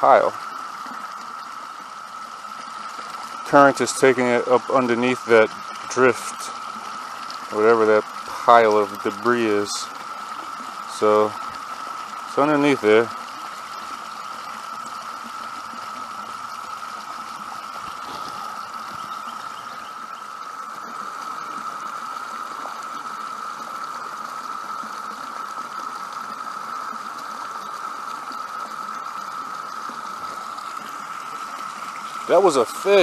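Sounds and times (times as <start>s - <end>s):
cicadas droning: 0.0s - 33.0s
waterfall pouring into pool: 0.0s - 33.0s.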